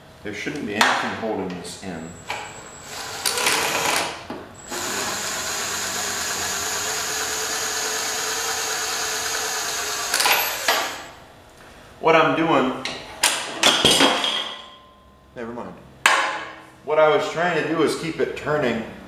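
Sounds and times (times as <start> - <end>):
cordless power driver whining: 2.8 - 11.1.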